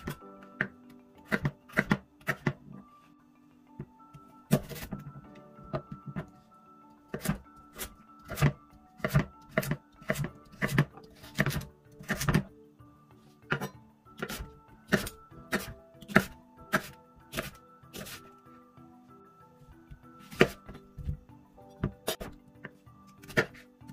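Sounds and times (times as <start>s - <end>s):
soft background music: 0.0s - 23.9s
knife chopping on wooden board: 1.3s - 2.6s, 7.1s - 12.5s, 13.5s - 18.2s, 20.3s - 20.7s, 23.2s - 23.6s.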